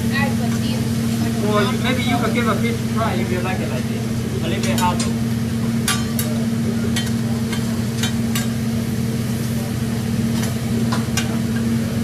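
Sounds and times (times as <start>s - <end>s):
food sizzling: 0.0s - 12.0s
metal spatulas clinking on griddle: 4.6s - 5.2s, 5.8s - 6.4s, 7.0s - 8.6s.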